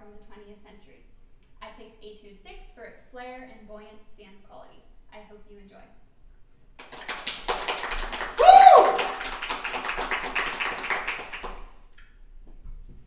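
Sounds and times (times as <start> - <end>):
small group clapping: 6.8 - 11.8
person whooping: 8.4 - 9.3.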